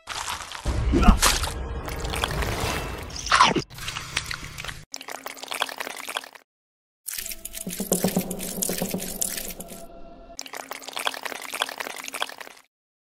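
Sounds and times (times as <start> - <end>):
mud squelching and water splashing: 0.0 - 6.4, 7.1 - 12.7.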